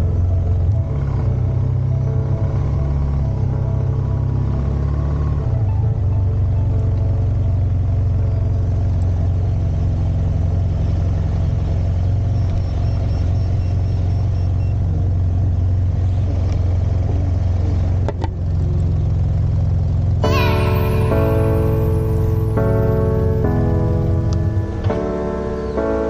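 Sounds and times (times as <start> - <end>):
scooter engine idling: 7.2 - 26.0.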